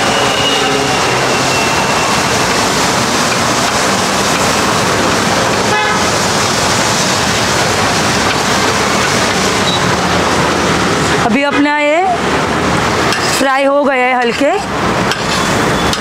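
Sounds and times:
road traffic: 0:00.0 - 0:16.0
food sizzling on griddle: 0:00.7 - 0:09.8
vehicle horn toot: 0:05.7 - 0:06.0.

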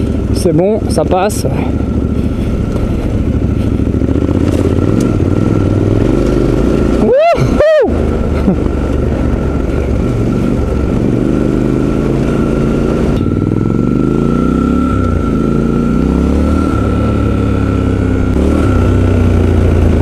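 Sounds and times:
motorcycle engine revving: 0:00.0 - 0:20.0.

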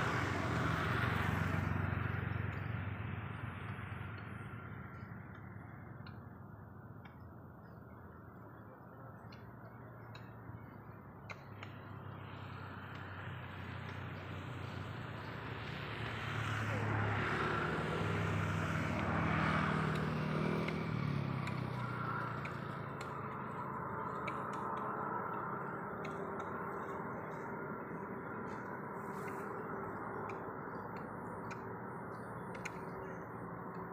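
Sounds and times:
vehicle passing by: 0:00.0 - 0:06.2, 0:11.6 - 0:33.9
faint clicks: 0:08.9 - 0:14.8, 0:19.8 - 0:33.9.

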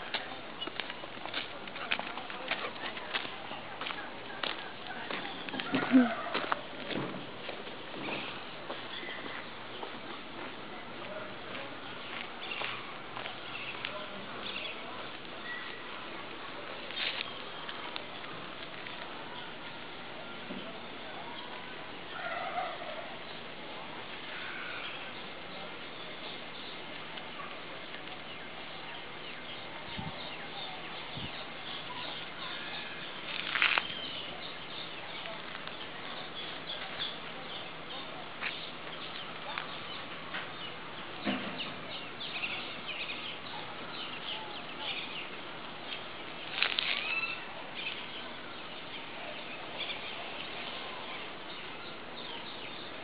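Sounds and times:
birds chirping: 0:00.0 - 0:53.0
loud bird calls: 0:28.3 - 0:52.9.

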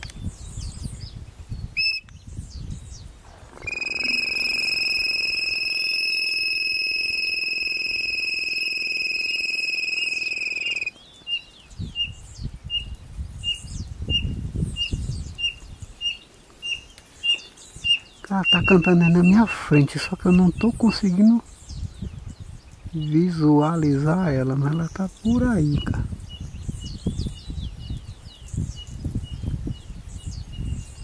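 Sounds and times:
high whistle of quail caller: 0:01.8 - 0:02.1, 0:03.3 - 0:10.9, 0:18.4 - 0:20.6
quail calling: 0:03.3 - 0:10.9.

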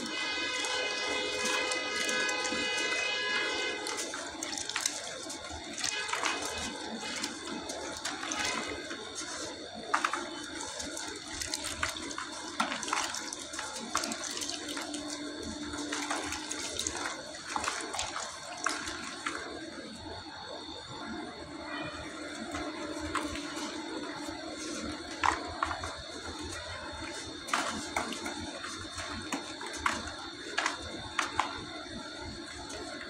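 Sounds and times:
wet sand crumbling into bucket: 0:00.0 - 0:19.6, 0:22.4 - 0:33.0
sand splashing into wet slurry: 0:22.4 - 0:33.0.

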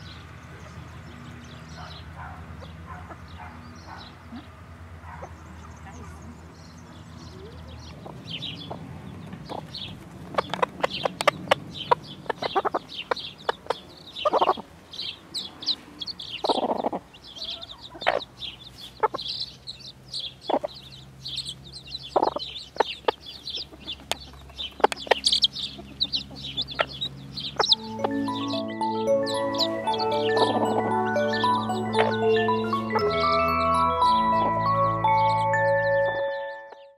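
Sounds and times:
chicks peeping: 0:00.0 - 0:36.9
hen clucking: 0:07.4 - 0:36.0.

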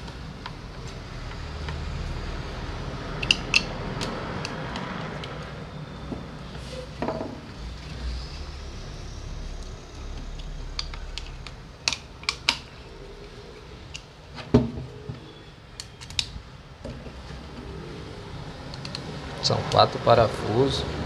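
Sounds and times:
road traffic rumble: 0:00.0 - 0:21.0
small metal parts clicking: 0:03.2 - 0:05.4.

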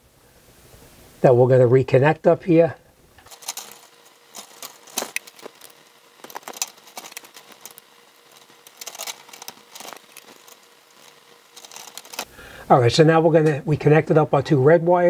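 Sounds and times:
wire strippers clicking and scraping: 0:03.2 - 0:12.3.

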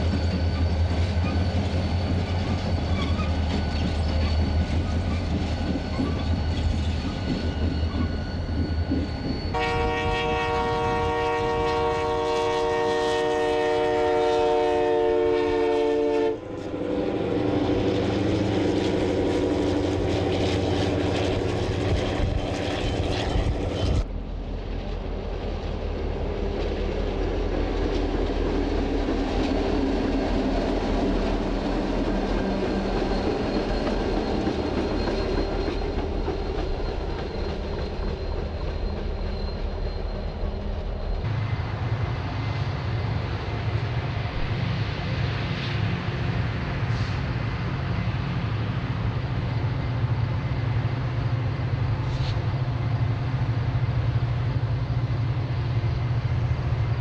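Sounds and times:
locomotive engine rumbling: 0:00.0 - 0:45.5
locomotive passing: 0:00.0 - 0:57.0
train running: 0:00.0 - 0:57.0
locomotive horn blast: 0:09.5 - 0:17.4.

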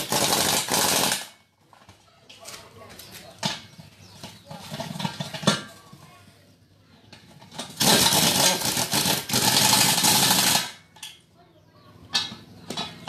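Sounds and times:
pneumatic impact wrench hammering: 0:00.0 - 0:01.4, 0:07.5 - 0:11.1.

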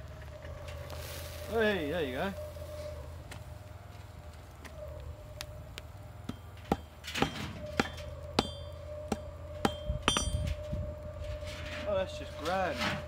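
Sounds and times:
hammer striking steel on anvil: 0:06.3 - 0:10.5.

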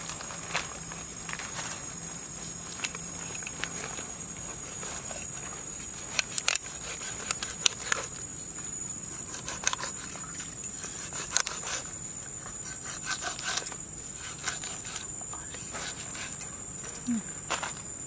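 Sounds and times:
blade clicking on bones: 0:06.1 - 0:08.1
cleaver cutting fish: 0:09.1 - 0:11.9.

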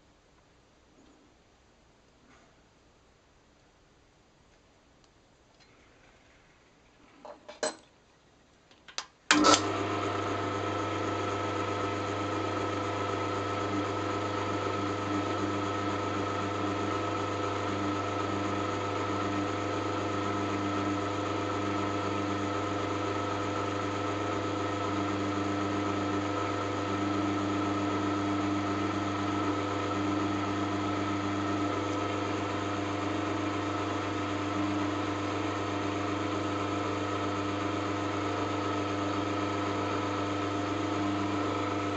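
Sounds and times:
drill press motor humming: 0:09.3 - 0:41.9.

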